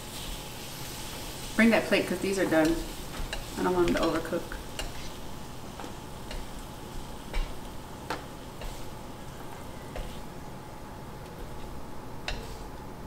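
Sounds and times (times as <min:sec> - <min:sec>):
shrimp sizzling on griddle: 0:00.0 - 0:13.0
chopsticks clicking on griddle: 0:02.5 - 0:05.1, 0:05.8 - 0:06.6, 0:07.3 - 0:08.8, 0:09.9 - 0:10.2, 0:12.2 - 0:12.6.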